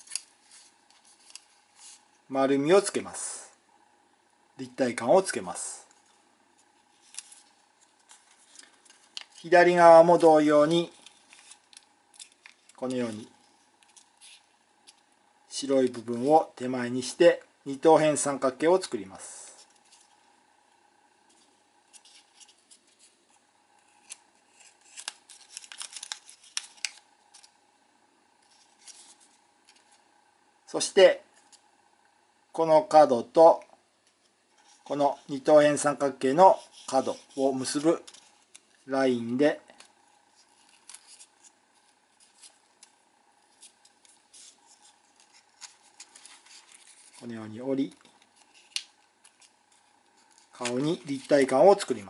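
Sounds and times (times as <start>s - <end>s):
paper crinkling and rustling: 0.0s - 2.3s, 5.9s - 15.1s, 19.6s - 20.4s, 21.2s - 27.6s, 28.3s - 30.1s, 34.1s - 52.0s.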